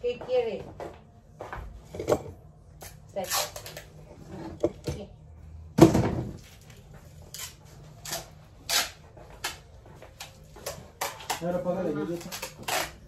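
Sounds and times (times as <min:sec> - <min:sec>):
objects rustling and clattering: 0:05.8 - 0:13.0.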